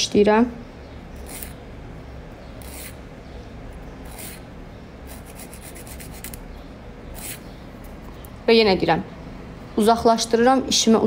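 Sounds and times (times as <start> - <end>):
nail file rasping: 1.2 - 1.6, 2.6 - 3.0, 4.0 - 4.4, 5.1 - 6.4, 7.2 - 7.4.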